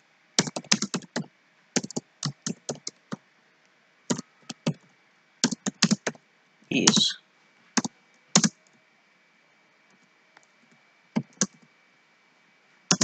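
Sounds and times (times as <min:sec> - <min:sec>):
computer keyboard keystrokes: 0:00.4 - 0:03.2, 0:04.1 - 0:04.8, 0:05.4 - 0:06.2, 0:07.8 - 0:08.7, 0:11.2 - 0:11.7.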